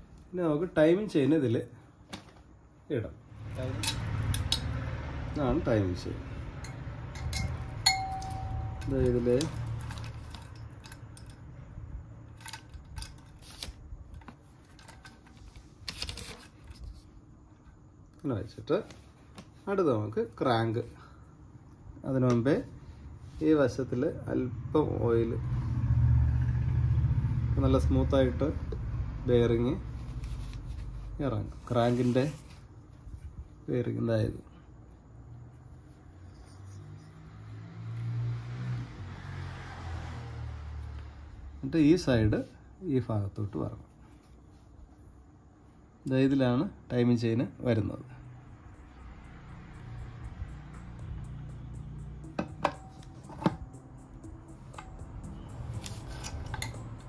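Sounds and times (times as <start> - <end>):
vehicle engine humming: 3.4 - 12.2, 48.2 - 57.0.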